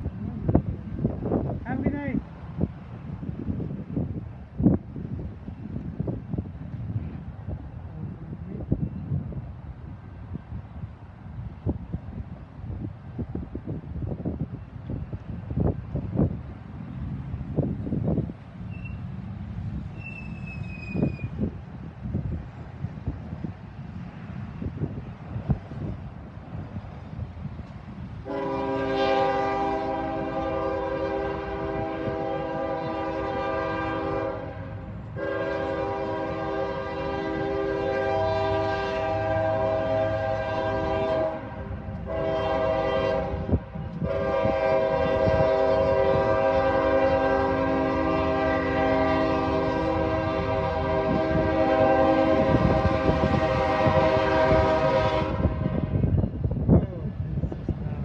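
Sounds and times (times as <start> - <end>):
locomotive air horn blasts: 28.2 - 56.1.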